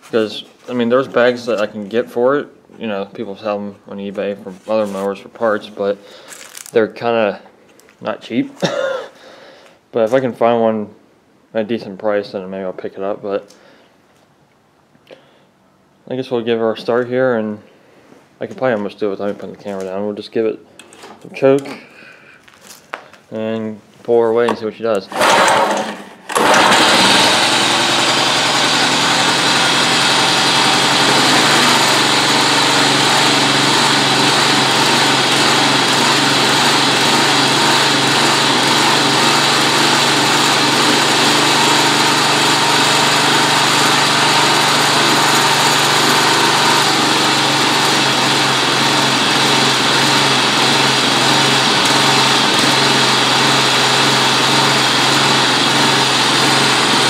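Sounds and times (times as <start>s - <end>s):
lawn mower engine running: 25.1s - 57.0s.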